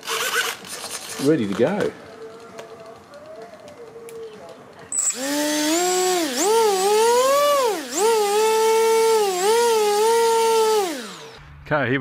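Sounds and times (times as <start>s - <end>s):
motor and propeller whine: 5.0s - 11.4s.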